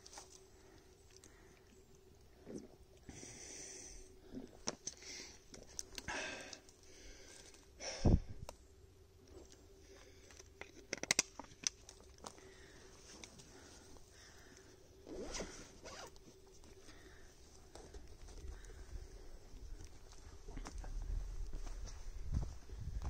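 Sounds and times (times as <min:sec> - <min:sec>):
footsteps crunching on trail: 0:17.6 - 0:23.0.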